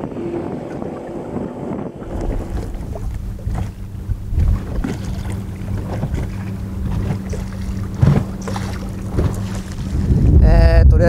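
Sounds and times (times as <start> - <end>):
water slapping boat hull: 0.0 - 10.4
low hum: 0.0 - 11.0
wind rumbling on microphone: 0.0 - 11.0
short knocks: 2.2 - 9.8.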